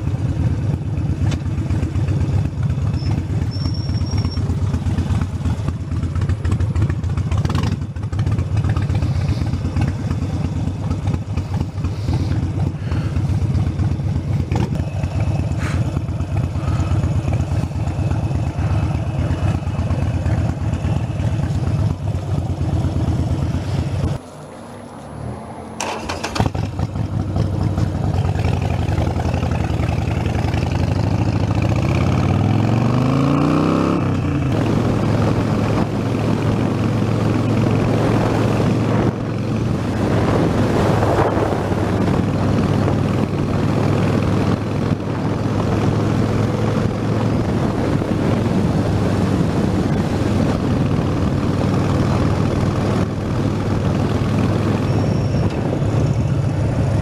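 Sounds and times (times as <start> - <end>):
motorcycle engine accelerating: 0.0 - 57.0
road noise: 0.0 - 57.0
wind noise: 33.6 - 57.0.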